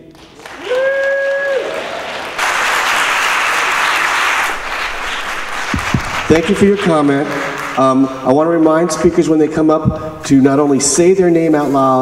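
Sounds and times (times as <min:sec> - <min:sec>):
audience applauding: 0:00.0 - 0:08.2
person cheering: 0:00.4 - 0:02.1.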